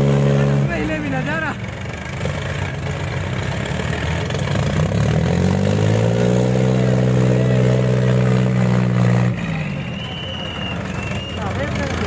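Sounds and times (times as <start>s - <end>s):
tractor diesel engines under load: 0.0s - 12.0s.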